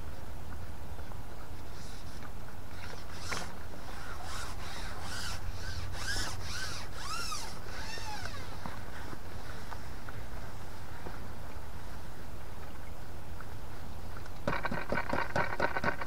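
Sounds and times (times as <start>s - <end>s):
fishing pole squeaking: 2.9s - 8.7s.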